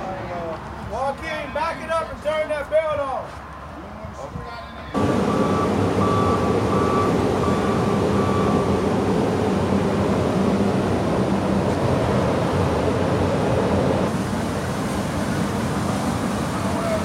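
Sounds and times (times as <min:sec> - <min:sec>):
heavy diesel machinery running: 0:05.0 - 0:17.0.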